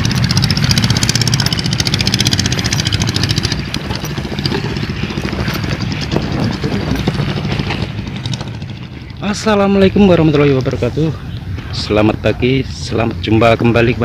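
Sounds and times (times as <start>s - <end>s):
small engine running: 0.0s - 11.2s.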